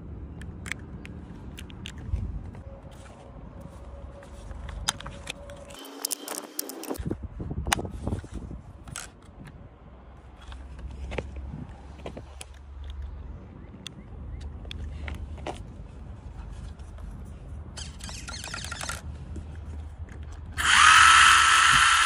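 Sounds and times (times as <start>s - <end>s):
sharp plastic clicks: 17.8s - 19.1s.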